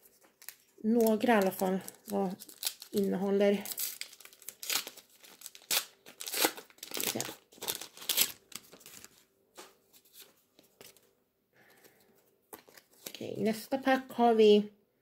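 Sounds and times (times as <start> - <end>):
wrapper tearing and crinkling: 0.0 - 9.2
cards rustling: 0.0 - 11.1, 11.7 - 13.2.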